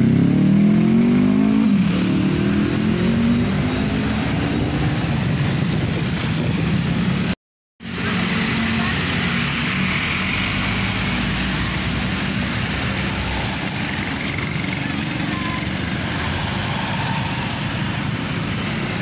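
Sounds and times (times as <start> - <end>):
motorcycles passing: 0.0 - 19.0
road noise: 0.0 - 19.0
truck engine passing: 8.0 - 19.0.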